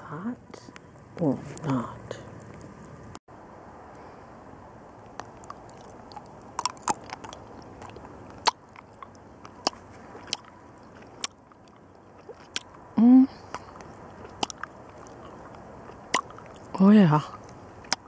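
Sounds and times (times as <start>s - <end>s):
person chewing candy: 5.1s - 18.0s.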